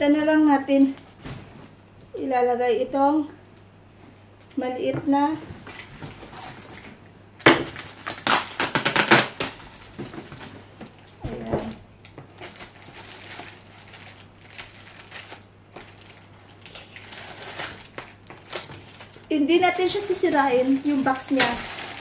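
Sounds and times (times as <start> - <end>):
cardboard and tape rustling: 5.4 - 7.0, 7.6 - 22.0.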